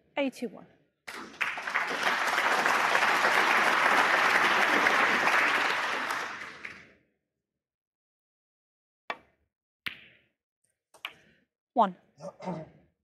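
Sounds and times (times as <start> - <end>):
crowd applauding: 1.1 - 6.8.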